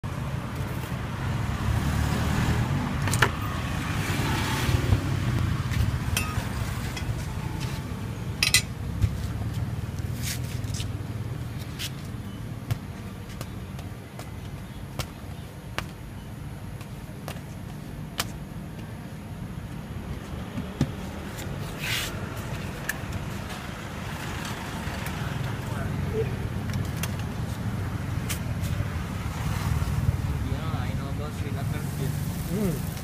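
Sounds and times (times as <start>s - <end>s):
road traffic rumble: 0.0s - 33.0s.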